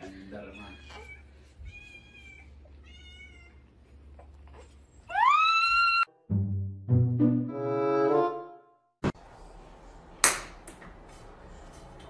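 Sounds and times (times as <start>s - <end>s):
cat meowing: 0.6s - 3.6s.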